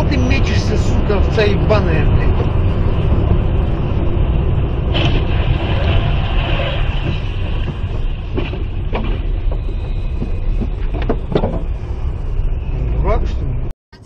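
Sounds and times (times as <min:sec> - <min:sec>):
tyres rumbling on slushy road: 0:00.0 - 0:13.7
short knocks: 0:07.1 - 0:11.8.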